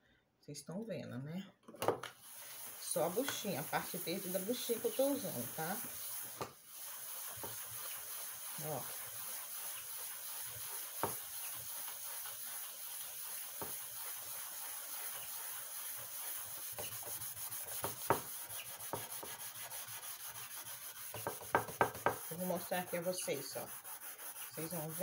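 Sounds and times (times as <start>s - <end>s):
scouring pad scrubbing a pan: 2.2s - 25.0s.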